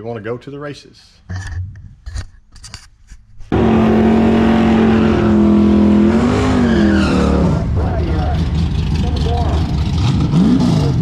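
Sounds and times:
loud car engine revving: 0:03.5 - 0:11.0.

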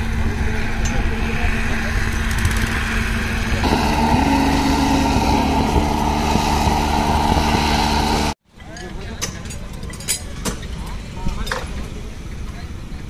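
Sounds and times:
engine running steadily: 0:00.0 - 0:08.4.

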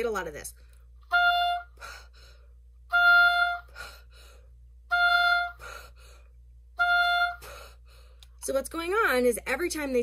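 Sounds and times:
oboe playing held notes: 0:01.0 - 0:01.9, 0:02.9 - 0:03.9, 0:04.9 - 0:05.9, 0:06.8 - 0:07.7
person breathing loudly: 0:05.6 - 0:06.4, 0:07.4 - 0:08.2.

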